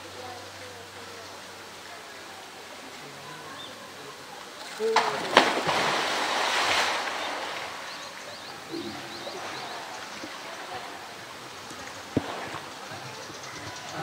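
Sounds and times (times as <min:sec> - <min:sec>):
gentle water movement: 0:00.0 - 0:14.0
water crashing and splashing: 0:04.6 - 0:14.0.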